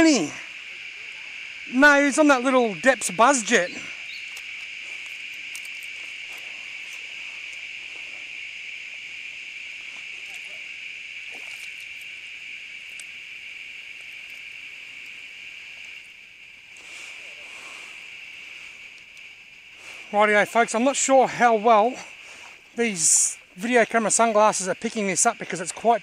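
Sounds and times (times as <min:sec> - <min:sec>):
insect chorus: 0:00.0 - 0:26.0
faint clicks: 0:04.2 - 0:07.6, 0:12.8 - 0:13.2, 0:18.9 - 0:19.4.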